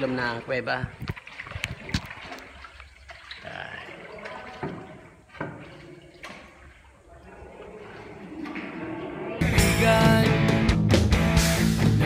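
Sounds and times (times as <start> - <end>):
water trickling and dripping: 0.0 - 9.4.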